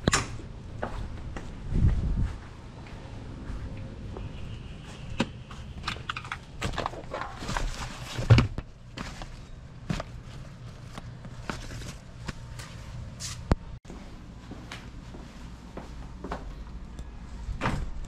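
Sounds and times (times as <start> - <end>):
fabric and plastic rustling: 5.8 - 13.5.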